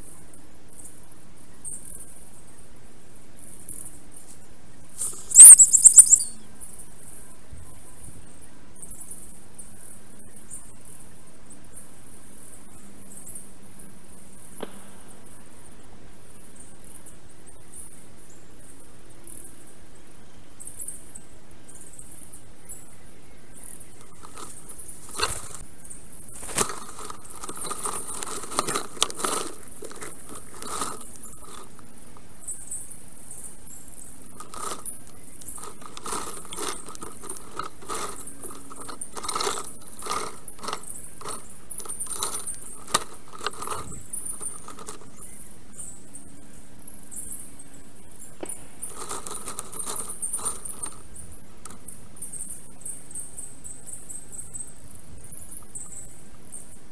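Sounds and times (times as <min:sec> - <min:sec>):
sticks clicking and rattling: 0:05.0 - 0:06.3, 0:24.0 - 0:25.6, 0:26.4 - 0:31.9, 0:34.3 - 0:45.2, 0:48.8 - 0:51.8
high fine chirping: 0:05.0 - 0:06.4, 0:23.8 - 0:46.1.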